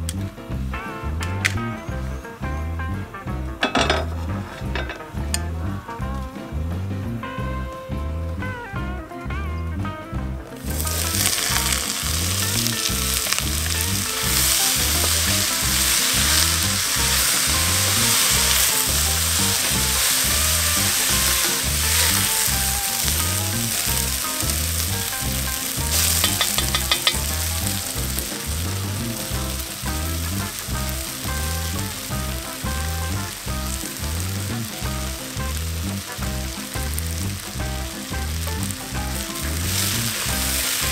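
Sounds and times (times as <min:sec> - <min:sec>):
low music beat: 0:00.0 - 0:40.9
vegetables sizzling in oil: 0:10.6 - 0:40.9.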